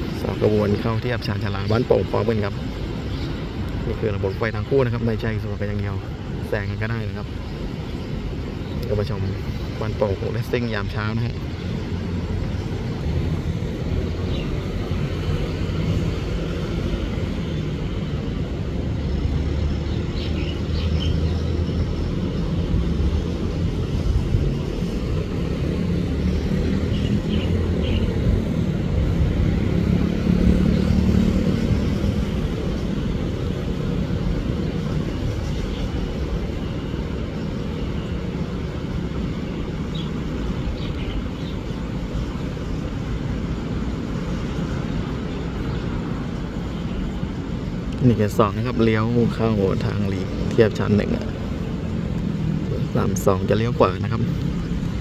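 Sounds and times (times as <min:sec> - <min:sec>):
motorcycles and cars passing: 0:00.0 - 0:55.0.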